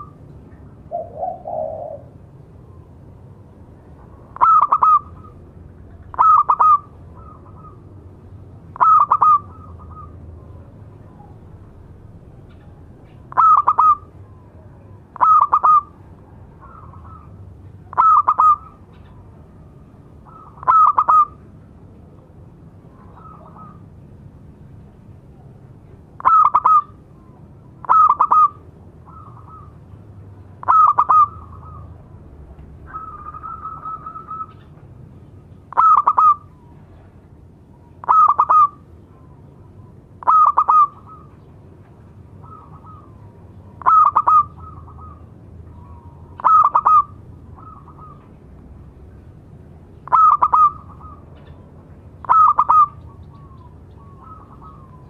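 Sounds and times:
dove cooing: 0:00.9 - 0:02.9, 0:04.0 - 0:05.4, 0:06.0 - 0:07.9, 0:08.8 - 0:10.2, 0:12.6 - 0:14.6, 0:15.2 - 0:19.3, 0:20.2 - 0:21.4, 0:22.9 - 0:23.9, 0:26.2 - 0:27.0, 0:27.8 - 0:29.8, 0:30.6 - 0:32.0, 0:32.8 - 0:34.8, 0:35.7 - 0:36.6, 0:38.0 - 0:39.4, 0:40.2 - 0:41.4, 0:42.4 - 0:48.3, 0:50.0 - 0:51.5, 0:52.2 - 0:55.0.

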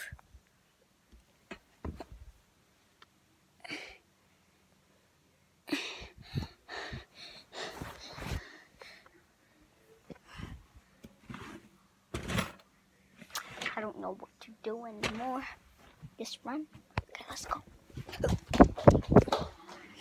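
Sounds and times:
breaths and sniffs: 0:05.9 - 0:09.1.

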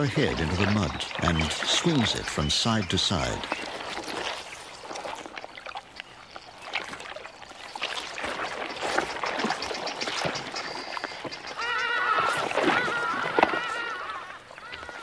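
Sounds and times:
wet splashes in mud and water: 0:00.0 - 0:15.0
short high animal calls: 0:11.6 - 0:15.0.

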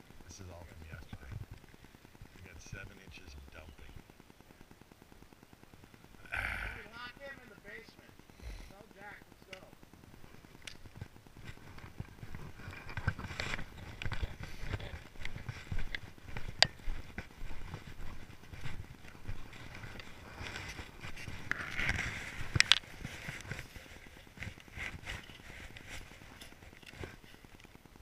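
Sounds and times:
footsteps on snow: 0:10.9 - 0:27.3.

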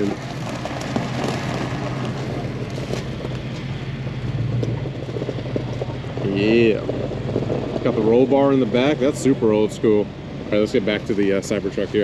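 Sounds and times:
footsteps on gravel: 0:00.0 - 0:03.8
vehicle engine idling: 0:00.0 - 0:12.0.

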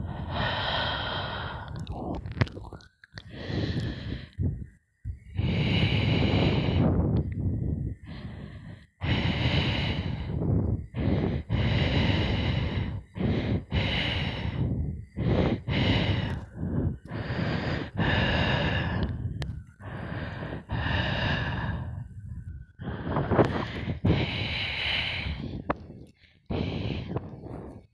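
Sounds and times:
laboured rasping breathing: 0:00.0 - 0:27.9.

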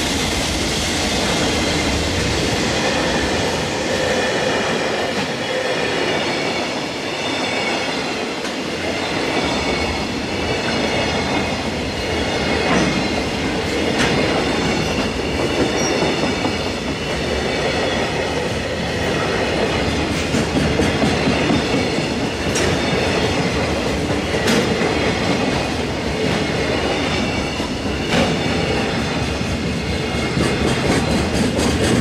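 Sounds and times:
train wheels rumbling on rail: 0:00.0 - 0:32.0
clickety-clack at rail joints: 0:01.1 - 0:32.0.

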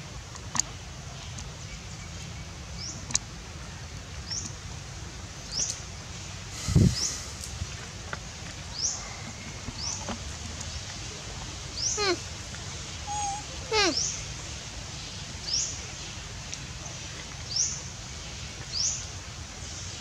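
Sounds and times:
animal chirps: 0:13.0 - 0:14.2.

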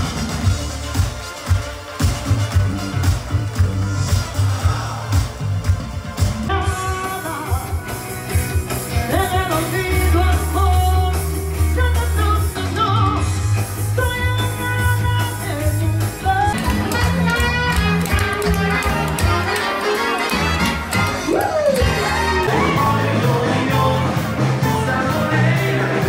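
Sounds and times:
bass line: 0:00.0 - 0:26.0
live band music: 0:00.0 - 0:26.0
lead singer singing: 0:06.5 - 0:08.0, 0:09.0 - 0:16.7, 0:21.9 - 0:26.0.

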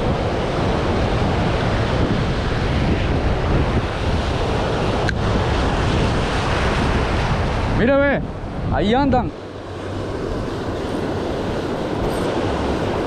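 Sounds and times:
surf washing over rocks: 0:00.0 - 0:13.0
wind buffeting microphone: 0:00.0 - 0:13.0.

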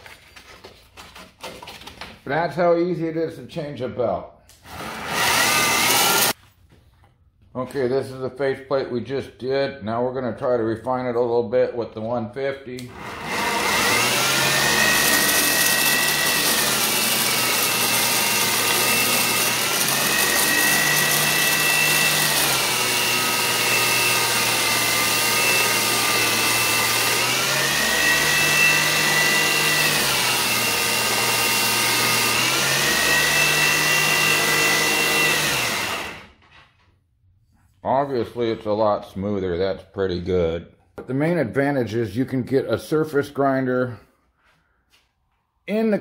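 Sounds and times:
belt grinder whining: 0:04.6 - 0:06.4, 0:12.8 - 0:36.5.

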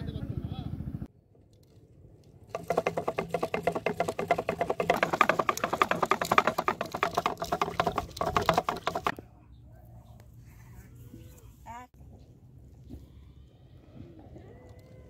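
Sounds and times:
fishing line spool clicking: 0:02.5 - 0:09.1.

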